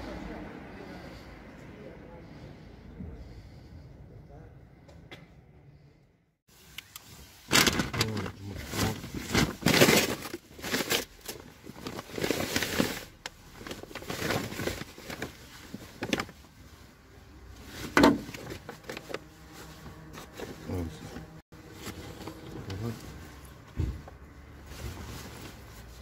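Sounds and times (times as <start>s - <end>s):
clothing and plastic bags rustling: 6.5s - 26.0s.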